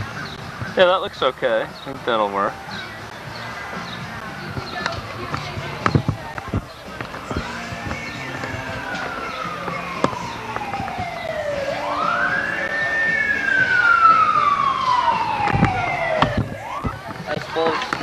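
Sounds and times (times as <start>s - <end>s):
siren wailing: 6.3s - 18.0s.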